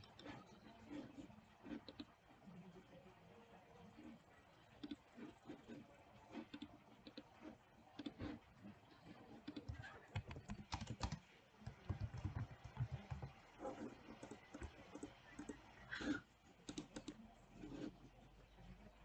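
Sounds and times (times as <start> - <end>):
keyboard typing: 4.7 - 8.4, 9.1 - 15.8, 16.6 - 17.9
mouse clicks: 16.6 - 17.2.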